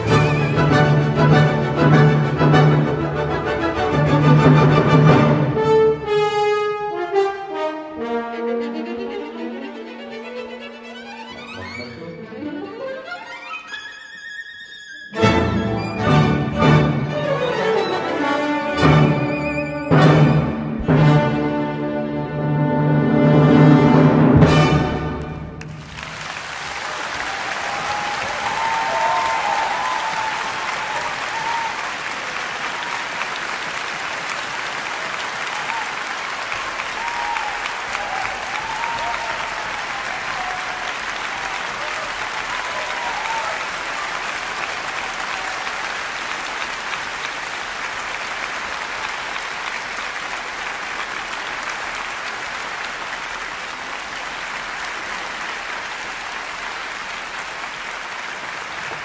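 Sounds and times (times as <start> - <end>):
audience applauding: 0.0 - 5.6, 25.0 - 59.0.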